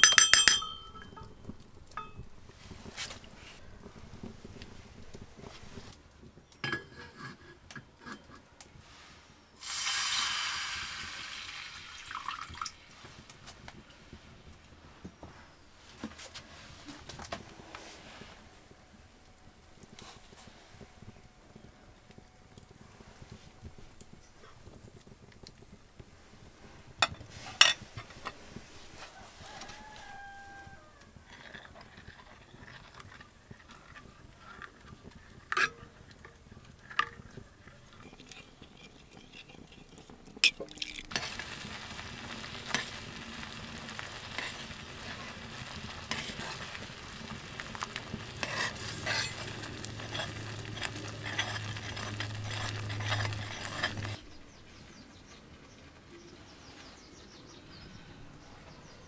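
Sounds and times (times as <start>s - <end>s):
spoon clinking on iron pan: 0.0s - 2.3s, 6.6s - 7.2s
porridge sizzling and bubbling: 0.0s - 59.0s.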